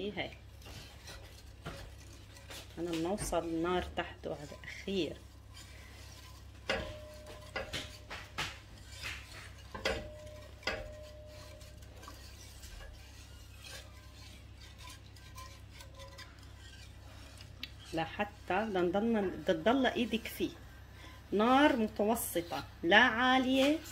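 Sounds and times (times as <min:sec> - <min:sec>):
utensil scraping metal pot: 0:00.0 - 0:23.9
pot ringing: 0:06.7 - 0:08.1, 0:09.8 - 0:11.8.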